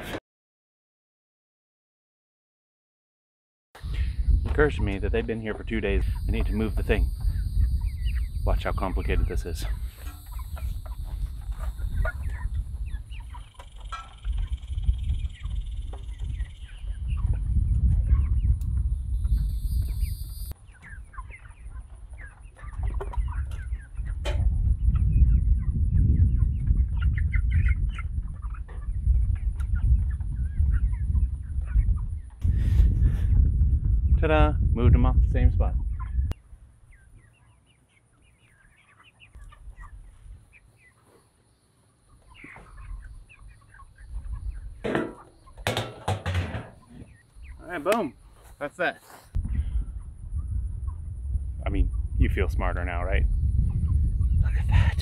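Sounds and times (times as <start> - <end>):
chickens cheeping and clucking: 3.8 - 34.3, 35.1 - 55.0
metal can lid clattering: 44.8 - 47.0.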